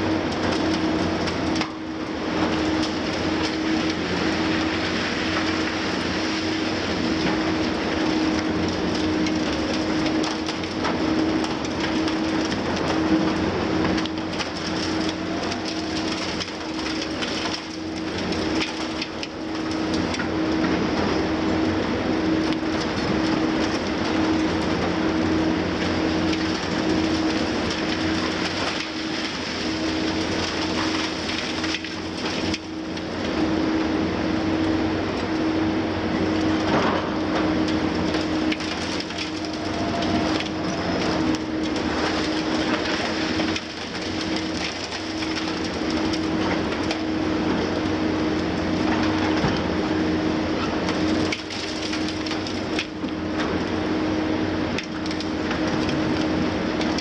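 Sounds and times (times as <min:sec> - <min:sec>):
diesel machinery hum: 0:00.0 - 0:57.0
excavator breaking concrete: 0:00.2 - 0:20.4, 0:36.6 - 0:47.0, 0:50.9 - 0:53.6
debris crumbling down: 0:25.8 - 0:33.1, 0:36.6 - 0:47.0, 0:50.9 - 0:53.1.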